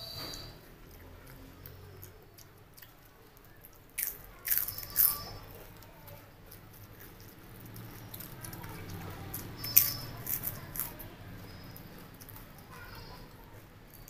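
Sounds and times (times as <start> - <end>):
quiet chewing: 0.2 - 14.0
chips crunching: 0.9 - 11.2.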